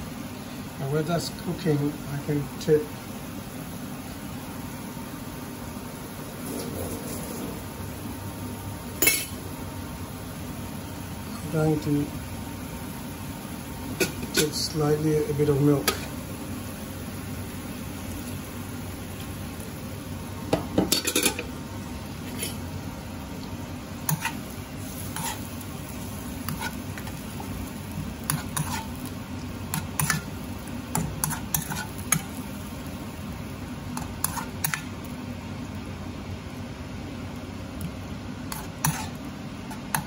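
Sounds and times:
low sizzle: 0.0s - 40.0s
metal spoon scraping in wok: 24.1s - 25.5s, 28.3s - 29.0s, 31.0s - 32.2s, 38.5s - 39.2s.

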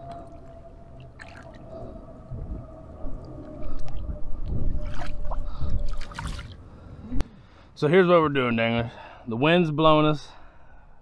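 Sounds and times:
wind buffeting microphone: 0.0s - 7.2s.

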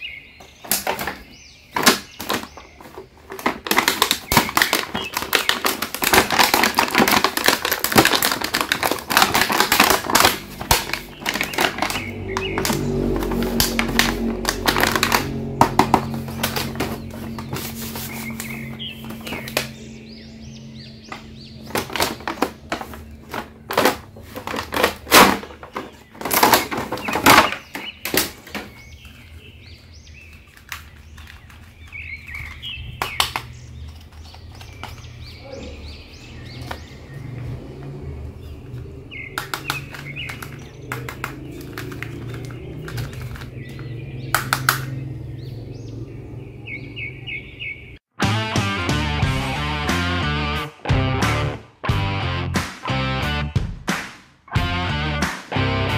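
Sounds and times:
clicks and knocks of plastic toy: 0.6s - 17.6s, 21.1s - 28.8s, 39.3s - 45.0s
paper rustling: 1.8s - 19.8s, 21.1s - 29.4s, 30.2s - 35.1s.

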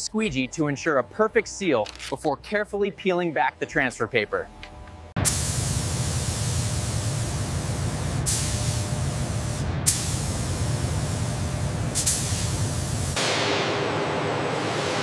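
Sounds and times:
paint spray gun hissing: 5.2s - 13.2s.

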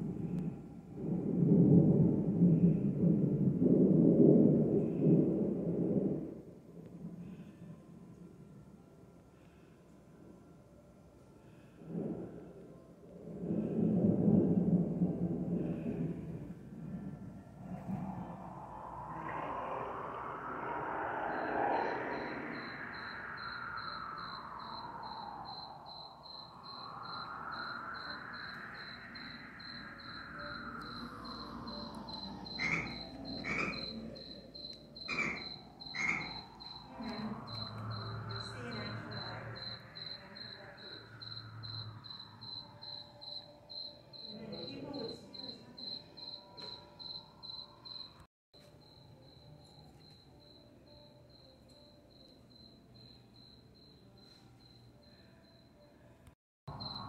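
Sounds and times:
cricket chirping: 13.5s - 57.0s.

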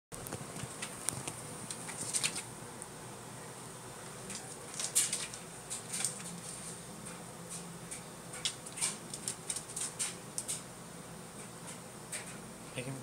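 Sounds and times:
cat claws skittering on tiles: 8.4s - 10.6s.

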